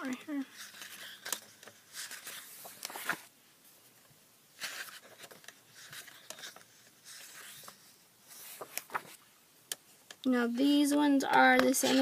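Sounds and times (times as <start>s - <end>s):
paper rustling and sliding: 0.4s - 9.3s.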